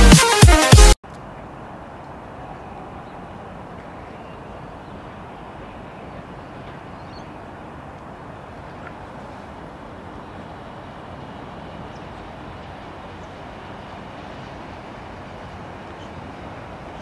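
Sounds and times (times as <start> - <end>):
outdoor rumble and hiss: 1.0 - 17.0.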